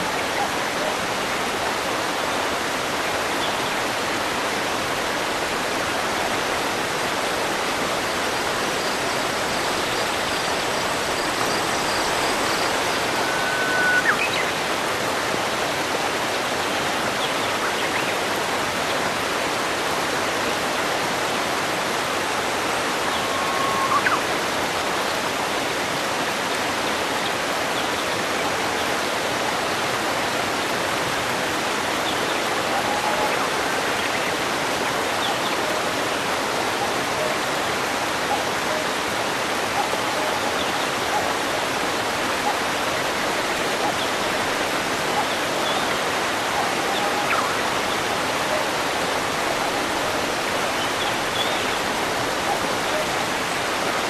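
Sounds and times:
waterfall rushing: 0.0 - 54.0.

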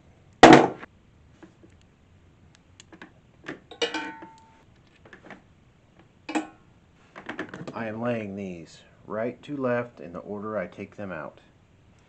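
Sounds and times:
metal clatter: 3.7 - 4.5
ringing metal clink: 3.7 - 4.6.

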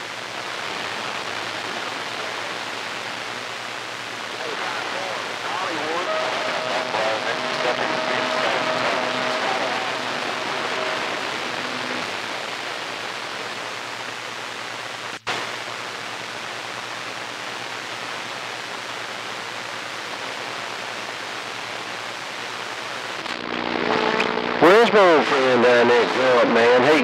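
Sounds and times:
radio receiver hiss: 0.0 - 16.1
faint radio tones: 0.0 - 18.6, 19.6 - 27.0.

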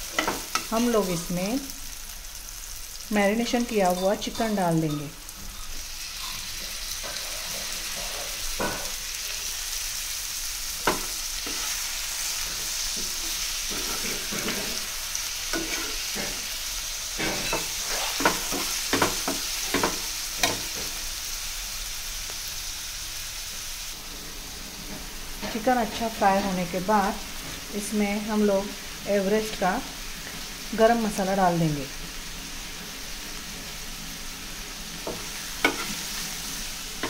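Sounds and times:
chicken sizzling in oil: 0.0 - 37.0
metal spatula scraping pan: 10.9 - 16.5, 35.1 - 36.2.

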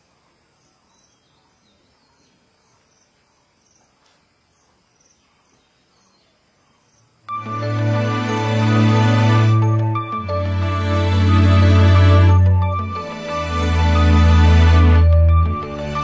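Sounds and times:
insect chirping: 0.0 - 8.4
music with deep bass: 7.3 - 16.0.

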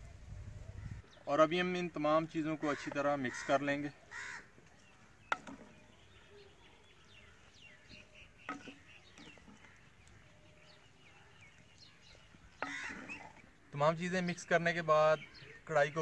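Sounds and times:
birds chirping: 0.7 - 16.0
wooden spoon stirring meat: 4.5 - 14.5.

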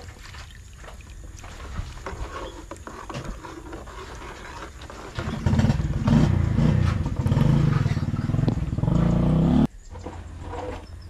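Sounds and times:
metal ladle stirring in pot: 2.0 - 5.5
small engine droning: 4.9 - 11.0.

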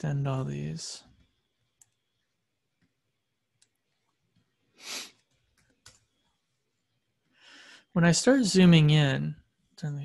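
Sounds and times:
computer mouse clicks: 1.2 - 2.0, 5.2 - 6.3
short breath: 7.4 - 7.9.

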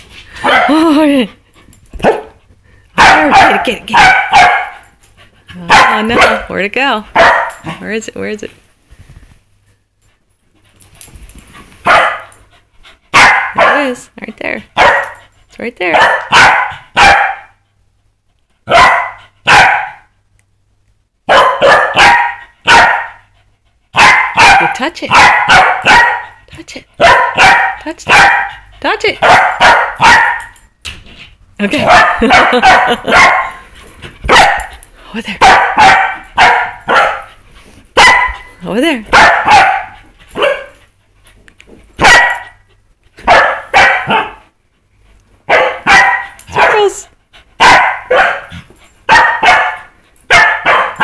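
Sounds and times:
dog barking: 0.4 - 0.8, 2.0 - 2.4, 3.0 - 4.8, 5.7 - 6.5, 7.2 - 7.5, 11.9 - 12.3, 13.2 - 13.9, 14.8 - 15.2, 15.9 - 17.6, 18.7 - 20.1, 21.3 - 23.2, 24.0 - 26.4, 27.0 - 28.6, 29.2 - 30.6, 31.8 - 33.6, 34.3 - 34.7, 35.4 - 37.3, 38.0 - 38.4, 39.1 - 40.7, 42.0 - 42.5, 43.2 - 44.4, 45.5 - 46.9, 47.6 - 48.5, 49.1 - 51.0.

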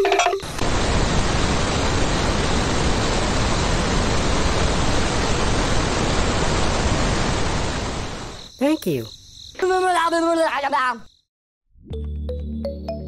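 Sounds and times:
steady loud hiss: 0.4 - 8.9.

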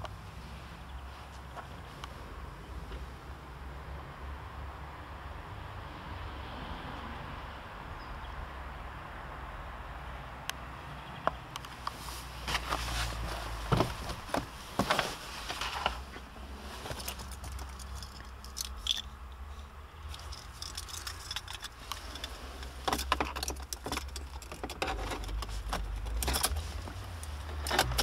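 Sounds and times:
keys clicking and scraping: 16.9 - 19.2, 20.1 - 28.0
car keys jangling: 17.0 - 19.2, 20.1 - 28.0.

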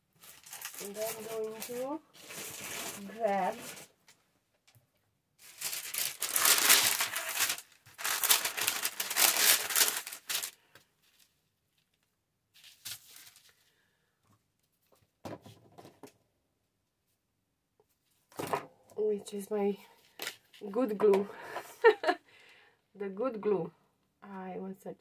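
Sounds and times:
crinkling and rustling of supplies: 0.0 - 16.2.

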